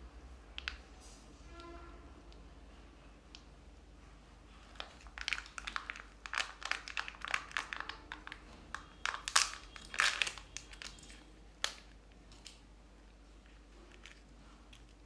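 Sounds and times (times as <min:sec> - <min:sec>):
plastic and foil crinkling: 0:04.6 - 0:12.6.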